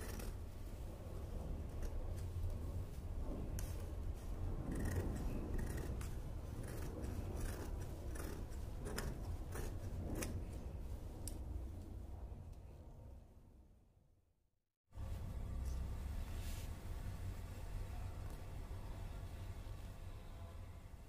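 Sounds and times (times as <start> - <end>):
scissors snipping fabric: 4.7 - 10.4.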